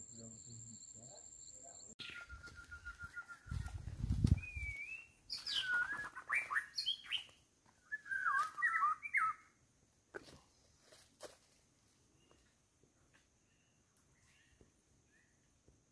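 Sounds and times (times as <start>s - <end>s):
bird song warbling: 0.1s - 9.5s.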